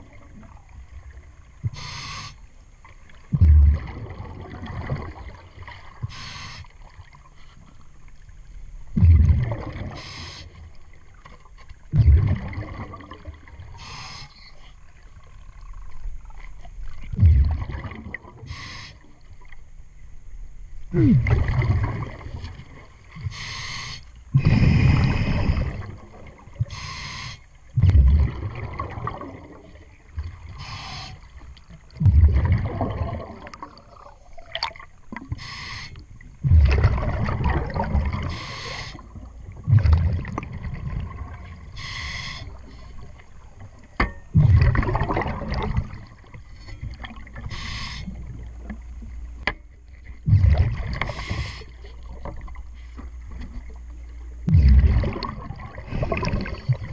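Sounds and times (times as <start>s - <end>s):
exhaled bubbles rumbling: 0.0s - 1.9s, 3.0s - 7.3s, 8.1s - 14.0s, 14.7s - 19.6s, 20.7s - 23.4s, 24.2s - 26.9s, 27.6s - 35.4s, 36.0s - 56.9s
regulator inhale hiss: 1.7s - 2.5s, 6.1s - 6.8s, 9.9s - 10.6s, 13.8s - 14.8s, 18.4s - 19.1s, 23.2s - 25.9s, 26.7s - 27.6s, 30.5s - 31.4s, 35.3s - 36.0s, 38.3s - 39.1s, 41.7s - 43.0s, 47.4s - 48.2s, 51.0s - 51.9s.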